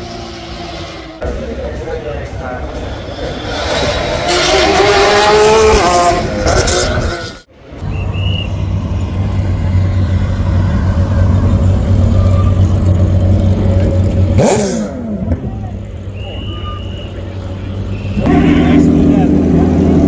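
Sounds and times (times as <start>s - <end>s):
racing car engine passing: 0.0s - 7.5s
racing engine idling: 8.5s - 20.0s.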